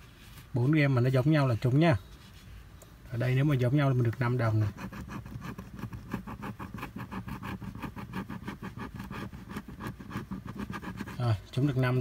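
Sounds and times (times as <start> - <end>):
coin scratching lottery ticket: 4.4 - 11.4.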